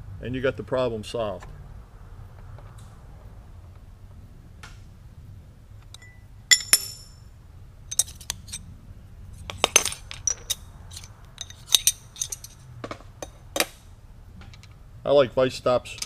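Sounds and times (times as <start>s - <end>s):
low steady hum: 0.0s - 16.0s
metal parts clinking in vise: 5.9s - 7.2s, 7.9s - 8.6s, 9.4s - 13.8s.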